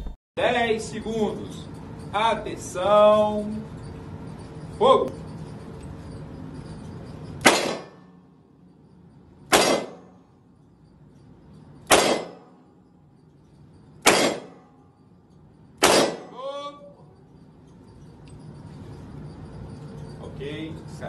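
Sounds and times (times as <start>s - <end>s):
revolver shots with echo: 7.4s - 8.0s, 9.5s - 10.2s, 11.9s - 12.6s, 14.0s - 14.6s, 15.8s - 16.4s.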